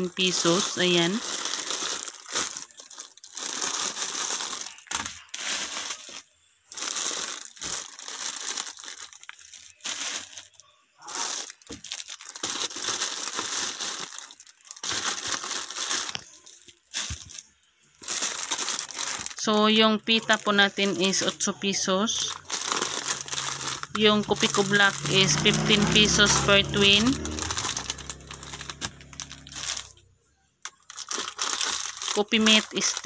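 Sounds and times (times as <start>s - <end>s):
plastic packs crinkling: 0.0s - 33.0s.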